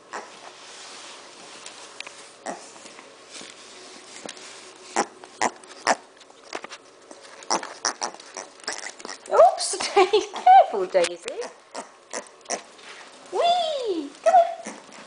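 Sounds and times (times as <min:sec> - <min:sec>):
piglet snorting and sniffing: 0:02.3 - 0:02.9, 0:03.6 - 0:06.2, 0:07.2 - 0:09.3, 0:11.4 - 0:13.1.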